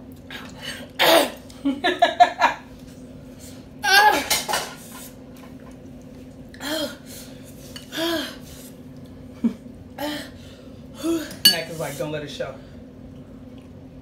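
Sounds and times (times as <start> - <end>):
forks clinking against bowls: 11.4 - 11.8.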